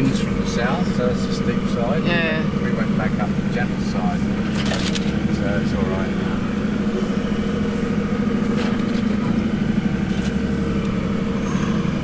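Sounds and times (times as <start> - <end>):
engine droning inside cab: 0.0 - 12.0.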